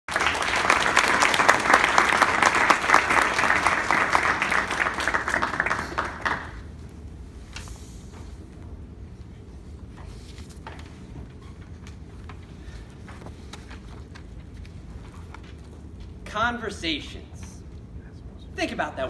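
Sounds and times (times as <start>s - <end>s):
audience applauding: 0.1s - 6.7s.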